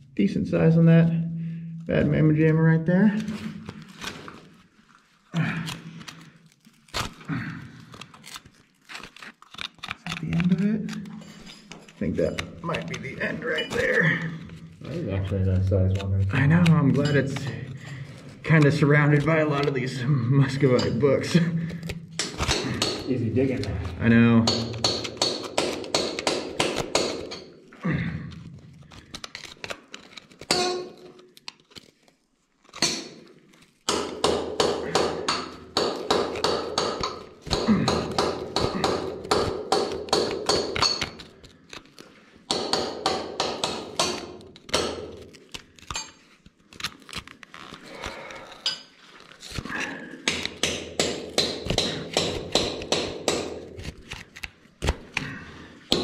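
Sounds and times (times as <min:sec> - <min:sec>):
metal tool tapping and scraping stone: 0:16.4 - 0:17.6, 0:24.4 - 0:27.5, 0:33.9 - 0:41.2.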